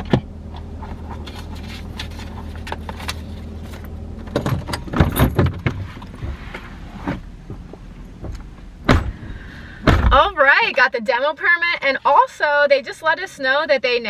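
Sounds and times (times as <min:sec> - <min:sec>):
car engine idling: 0:00.0 - 0:10.8
clicks and clunks in car cabin: 0:00.0 - 0:10.9.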